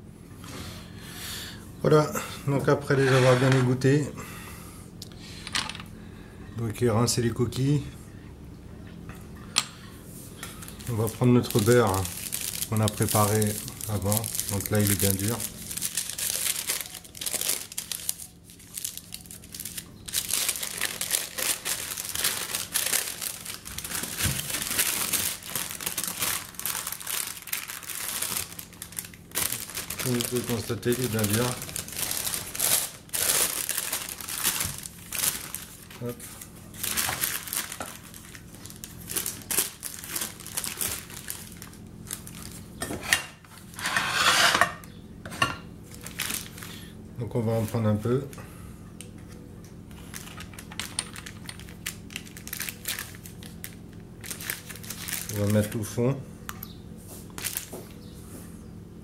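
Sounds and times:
paper wrapping crinkling: 10.4s - 42.8s, 45.9s - 46.9s, 49.9s - 56.0s, 57.2s - 58.0s.

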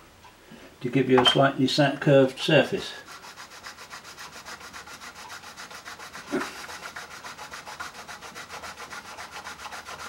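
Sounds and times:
reed scraping on sandpaper: 2.3s - 10.0s.

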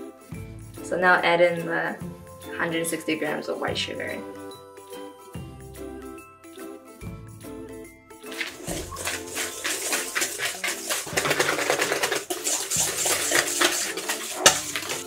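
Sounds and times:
whisk clinking against metal bowl: 8.3s - 15.0s.

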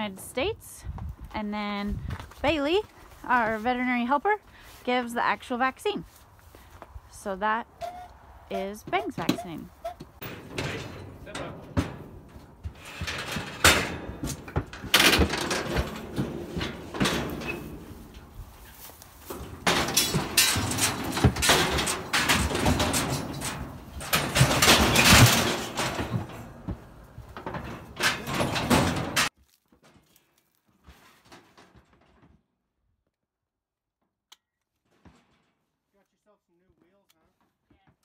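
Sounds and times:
metal chute clanging and rattling: 7.5s - 29.3s.

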